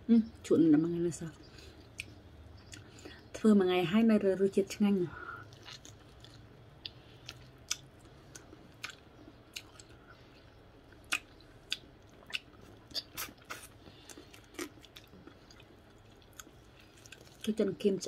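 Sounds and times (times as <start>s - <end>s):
person chewing meat: 1.6s - 3.2s, 5.4s - 17.5s
mouth clicks and smacks: 5.6s - 10.0s.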